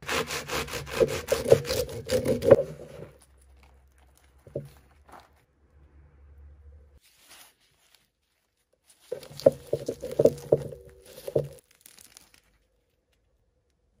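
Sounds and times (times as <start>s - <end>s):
bread crust crackling: 0.2s - 5.5s, 7.0s - 13.5s.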